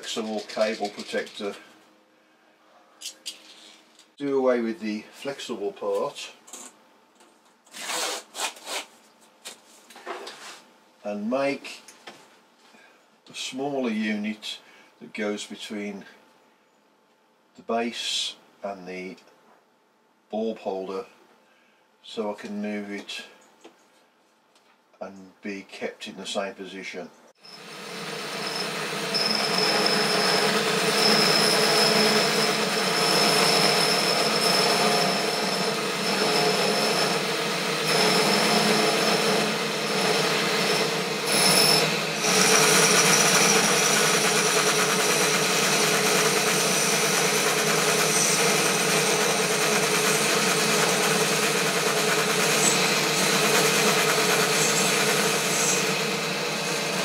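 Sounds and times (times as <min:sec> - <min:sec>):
lathe motor humming: 0:27.4 - 0:57.0
lathe tool cutting metal: 0:27.4 - 0:57.0.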